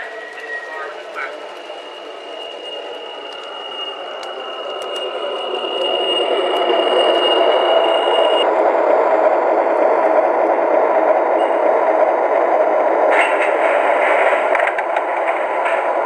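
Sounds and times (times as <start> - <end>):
model train rolling and motor rumble: 0.0 - 8.4
high steady whine: 0.0 - 16.0.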